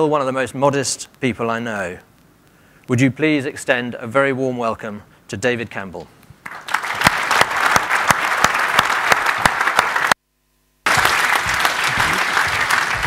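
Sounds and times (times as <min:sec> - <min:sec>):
audience applauding: 0:06.4 - 0:10.2, 0:10.9 - 0:13.0.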